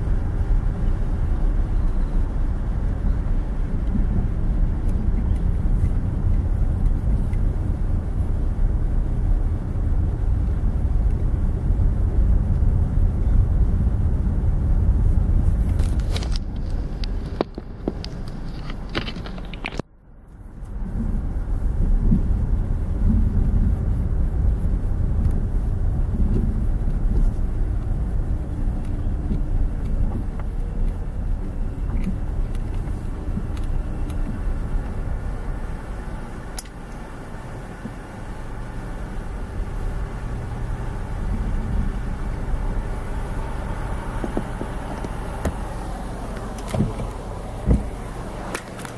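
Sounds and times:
car engine and tyres rumbling: 0.0 - 48.9
sharp clicks: 36.5 - 37.0.

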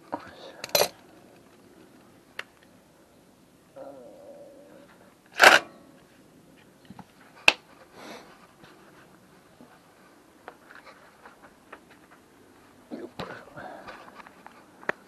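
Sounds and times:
faint clicks and rustles: 0.0 - 2.8, 6.0 - 15.0.

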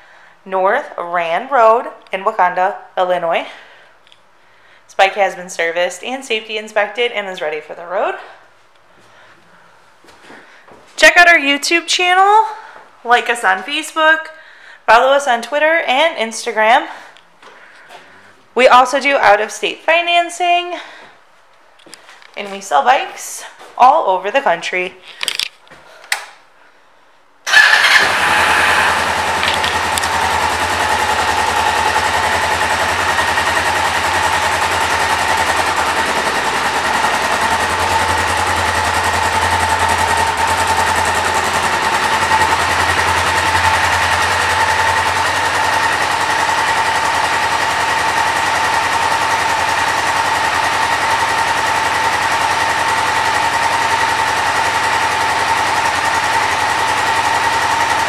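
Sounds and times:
motorcycle engine starting and idling: 27.4 - 58.0.

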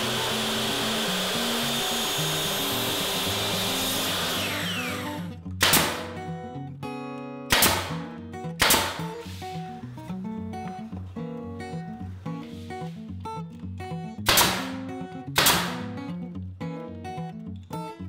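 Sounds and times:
miter saw motor whine: 0.0 - 5.3
brad nailer firing: 0.0 - 6.3, 7.5 - 9.2, 14.3 - 15.9.

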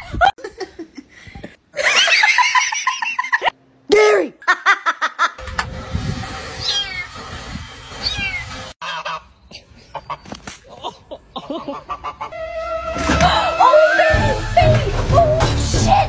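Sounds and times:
person laughing hard: 4.4 - 5.4
high falling squeaks: 5.5 - 8.8, 12.3 - 15.0.

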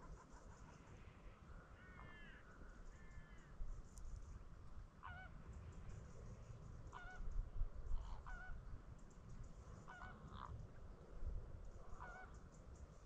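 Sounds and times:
wading birds honking: 9.9 - 10.5, 12.0 - 12.4.

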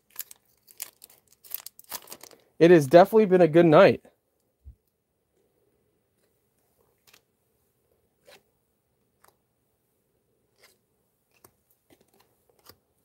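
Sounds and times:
trading cards sliding and flicking: 8.2 - 8.5, 10.6 - 12.8.

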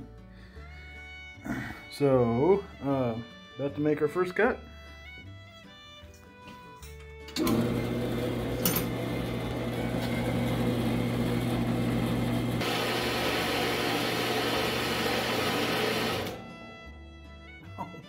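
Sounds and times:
band saw running: 7.4 - 16.8.

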